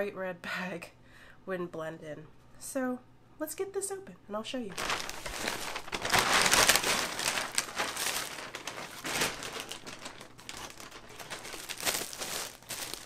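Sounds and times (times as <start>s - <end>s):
plastic packaging rustling: 4.7s - 13.0s.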